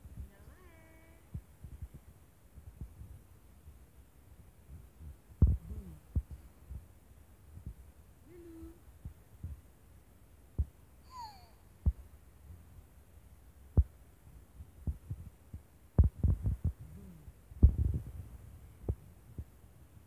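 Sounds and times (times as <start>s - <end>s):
soft thumps and taps from hands: 4.7s - 6.9s, 14.8s - 16.9s
faint baby sounds: 5.5s - 6.1s, 8.2s - 8.8s, 11.0s - 11.7s, 16.8s - 17.3s.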